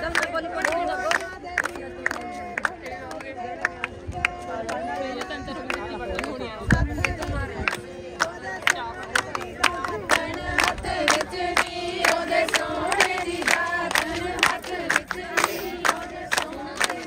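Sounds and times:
rhythmic hand-clapping: 0.0s - 17.0s
women singing together: 0.0s - 17.0s.

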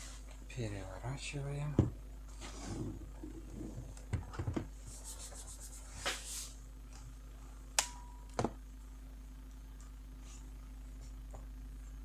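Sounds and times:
laptop rubbing and sliding: 2.4s - 3.8s, 4.8s - 6.6s.

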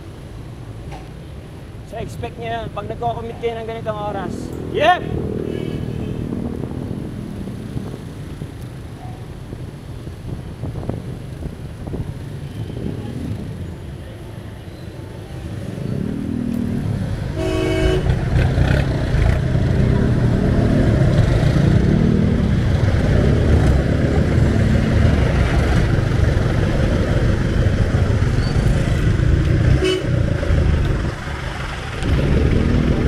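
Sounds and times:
traffic engines rumbling: 0.0s - 33.0s
car horn honking: 5.4s - 6.3s, 17.3s - 18.2s, 29.7s - 30.2s.

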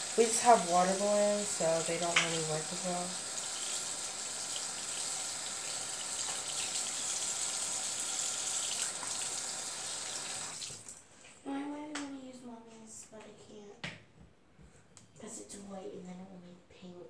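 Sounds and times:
water running from sink tap: 0.0s - 11.0s.

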